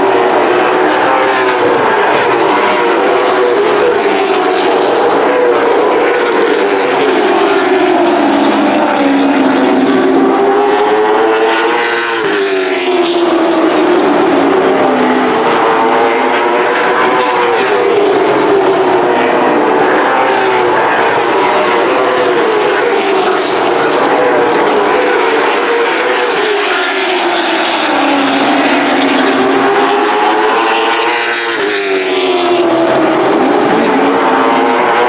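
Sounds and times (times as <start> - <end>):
race car engines running hard: 0.0 - 35.0.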